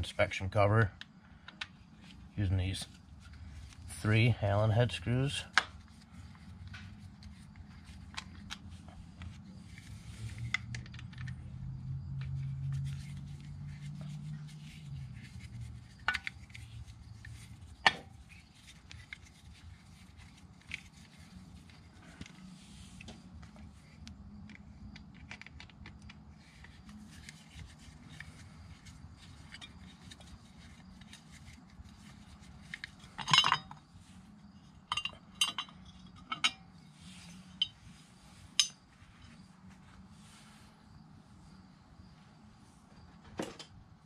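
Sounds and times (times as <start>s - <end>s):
metal clatter: 32.8s - 33.8s, 34.8s - 36.7s
wrench and screws clinking: 32.9s - 33.8s, 34.9s - 36.7s, 38.5s - 38.8s.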